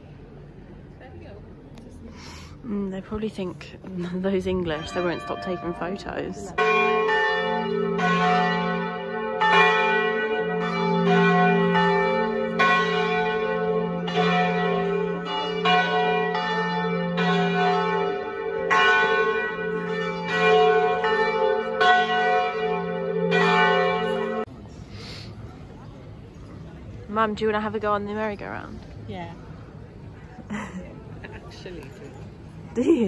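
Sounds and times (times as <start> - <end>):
church bells ringing: 4.4 - 24.5.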